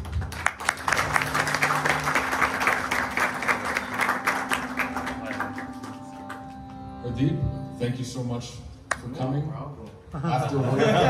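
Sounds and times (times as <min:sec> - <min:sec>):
audience applauding: 0:00.0 - 0:06.8
steady low tone: 0:00.8 - 0:10.3.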